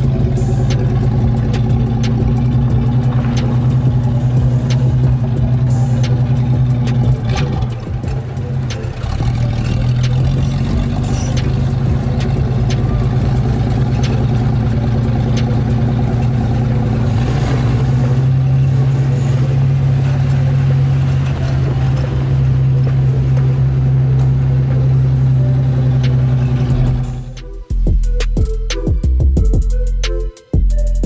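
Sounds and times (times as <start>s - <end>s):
vehicle engine droning: 0.0s - 31.0s.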